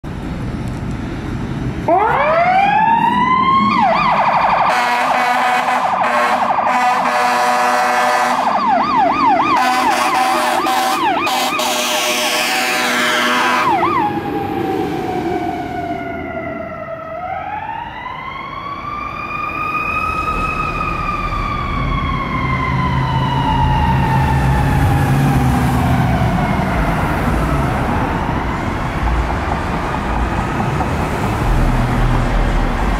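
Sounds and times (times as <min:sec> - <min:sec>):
truck engine rumbling: 0:00.0 - 0:32.9
mechanical siren wailing: 0:01.9 - 0:29.2
electronic siren warble: 0:02.0 - 0:04.9.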